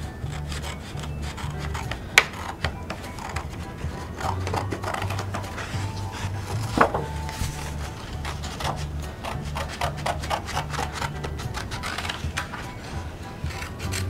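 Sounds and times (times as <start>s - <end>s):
scissors snipping paper: 0.2s - 12.9s, 13.5s - 14.0s
paper rustling: 0.6s - 14.0s.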